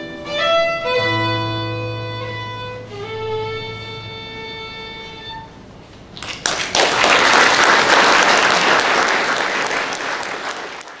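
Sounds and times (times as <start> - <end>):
audience applause: 6.2 - 11.0.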